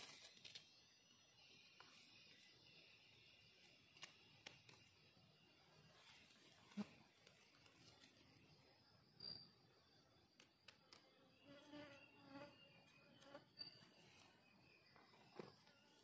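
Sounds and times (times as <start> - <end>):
faint insect buzz: 10.9 - 16.0.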